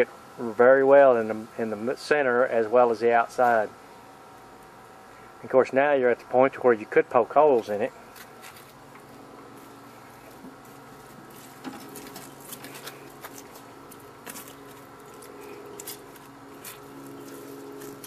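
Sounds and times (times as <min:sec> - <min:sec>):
charcoal crackling and popping: 0:07.7 - 0:18.0.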